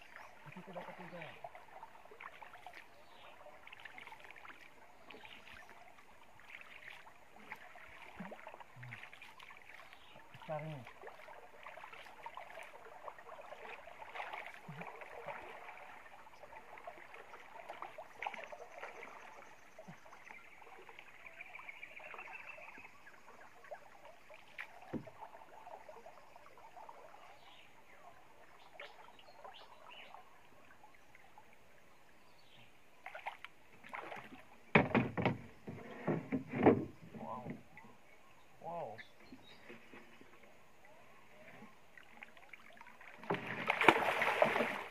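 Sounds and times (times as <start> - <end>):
water splashing around a canoe: 0.0 - 44.9
knock: 34.7 - 35.4.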